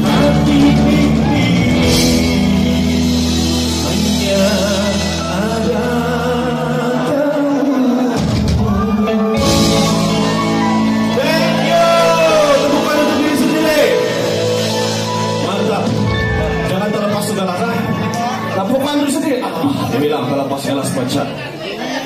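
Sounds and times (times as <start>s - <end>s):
man singing into a microphone: 0.0s - 16.0s
electric bass guitar: 0.0s - 18.8s
drum kit: 0.0s - 19.1s.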